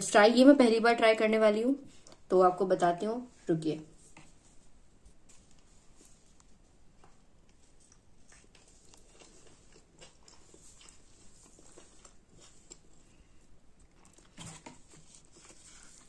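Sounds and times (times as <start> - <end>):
faint chewing: 1.9 - 2.3, 5.1 - 16.0.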